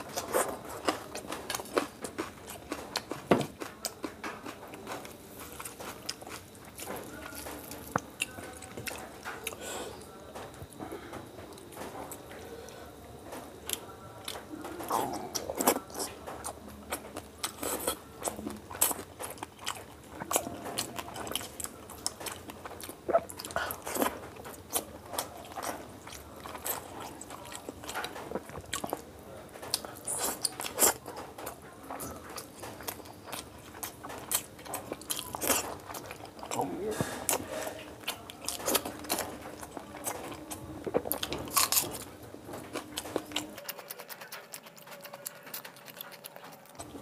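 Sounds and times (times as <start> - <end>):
man chewing: 0.0 - 13.0, 13.7 - 47.0.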